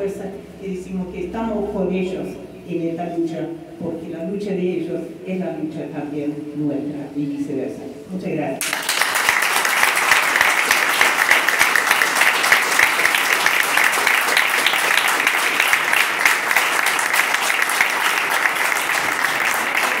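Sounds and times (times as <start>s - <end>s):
audience applauding: 8.6s - 20.0s
sharp close hand claps: 8.6s - 20.0s.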